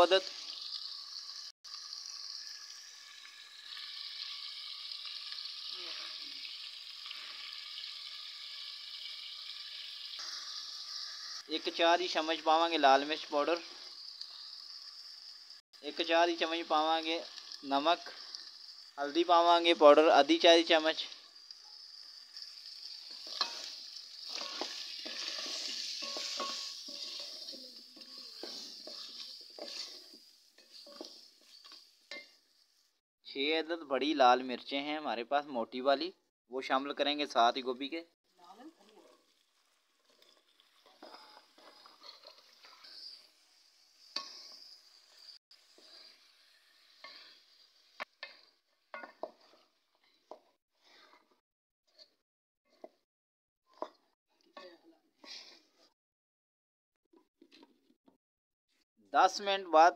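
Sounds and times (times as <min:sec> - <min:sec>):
food sizzling in a pan: 0:00.0 - 0:33.0, 0:36.9 - 0:53.0, 0:53.7 - 0:56.0
spatula scraping a pan: 0:22.4 - 0:32.8, 0:40.0 - 0:53.0, 0:55.2 - 0:55.8.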